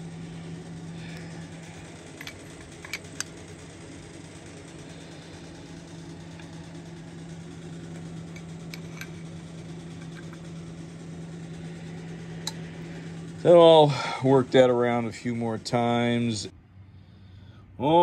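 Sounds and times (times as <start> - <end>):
steady low hum: 0.0 - 18.0
wrench metallic clicks: 1.2 - 3.4, 8.0 - 9.3.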